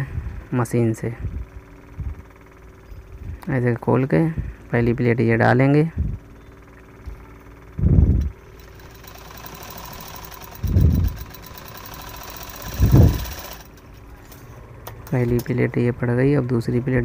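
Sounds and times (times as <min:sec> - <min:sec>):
sewing machine stitching: 0:08.4 - 0:15.5.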